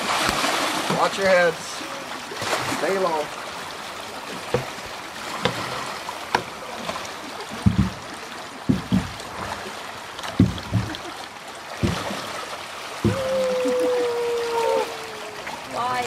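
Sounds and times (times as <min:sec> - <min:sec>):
water rushing down a ditch: 0:00.0 - 0:16.0
dull thumps: 0:04.4 - 0:06.6, 0:07.6 - 0:08.1, 0:08.7 - 0:09.5, 0:10.3 - 0:11.1, 0:11.8 - 0:12.2, 0:13.0 - 0:13.4.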